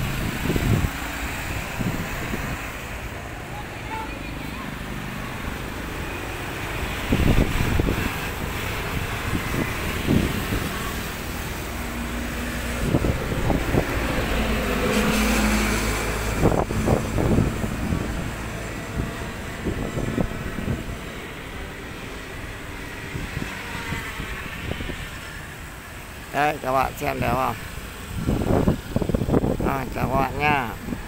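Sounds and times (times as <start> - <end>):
wind thumping on microphone: 0.0 - 3.1, 6.7 - 21.6, 27.7 - 31.0
road traffic rumble: 0.0 - 31.0
vehicle passing: 0.0 - 31.0.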